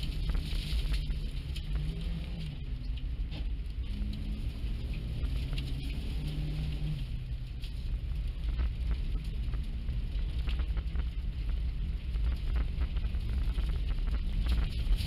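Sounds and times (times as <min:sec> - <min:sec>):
car engine and road rumble: 0:00.0 - 0:15.0
snow pattering against car body: 0:03.2 - 0:15.0.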